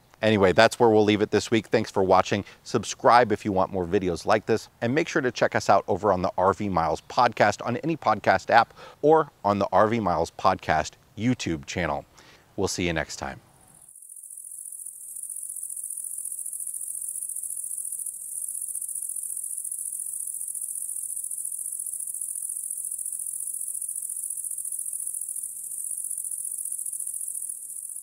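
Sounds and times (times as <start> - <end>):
crickets chirping: 13.6 - 28.0.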